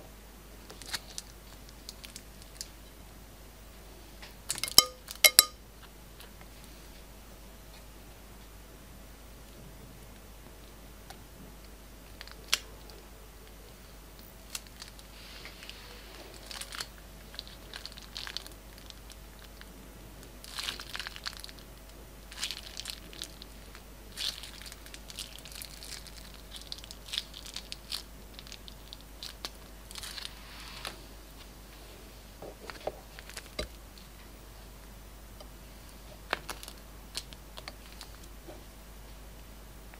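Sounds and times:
plastic bag crinkling: 0:16.3 - 0:19.6, 0:20.4 - 0:21.6, 0:22.3 - 0:30.4.

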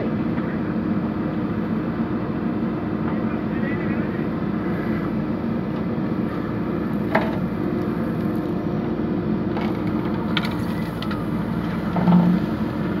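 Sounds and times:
diesel engine running: 0:00.0 - 0:13.0
bucket knocking: 0:11.9 - 0:12.5.

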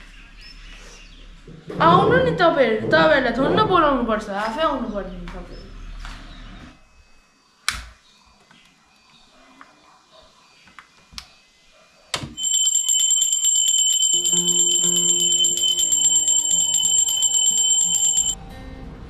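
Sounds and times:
metal bell rung rapidly: 0:12.4 - 0:18.4.

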